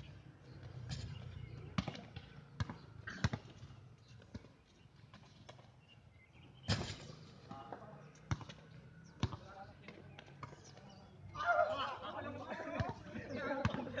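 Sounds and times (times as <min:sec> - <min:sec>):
basketball bouncing on hard court: 0:01.7 - 0:04.5, 0:08.3 - 0:08.6, 0:09.2 - 0:09.6, 0:13.6 - 0:14.0.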